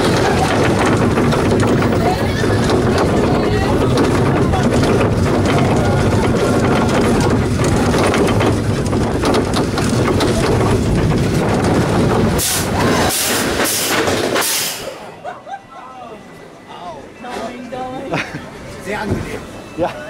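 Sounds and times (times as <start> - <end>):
roller coaster rumbling on track: 0.0 - 20.0
pneumatic brake hisses: 12.4 - 15.1.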